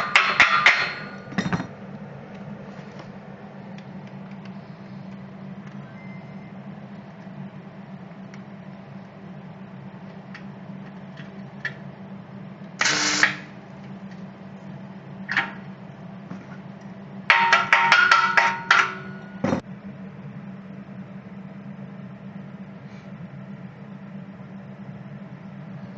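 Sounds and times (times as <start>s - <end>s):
steady low hum: 0.0s - 25.9s
welding arc crackling: 12.8s - 13.6s.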